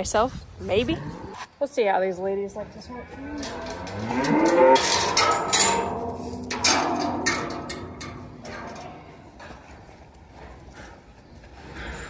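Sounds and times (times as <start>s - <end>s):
cow mooing: 2.9s - 6.0s
clatter of knocks and rattles: 3.4s - 10.9s.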